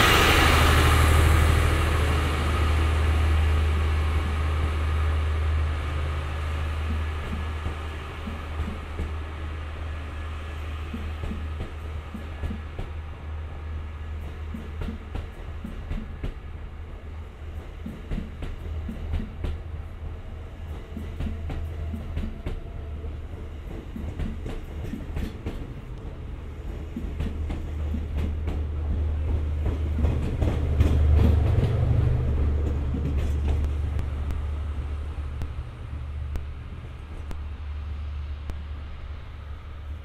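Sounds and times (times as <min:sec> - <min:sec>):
diesel train engine drone: 0:00.0 - 0:40.0
wheels clicking over rail joints: 0:23.3 - 0:37.5.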